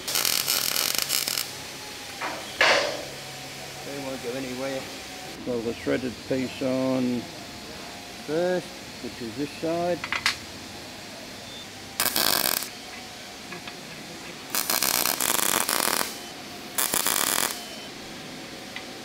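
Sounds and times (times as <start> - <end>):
harsh metalworking tool noise: 0.0 - 7.2, 12.0 - 13.8, 14.4 - 18.0.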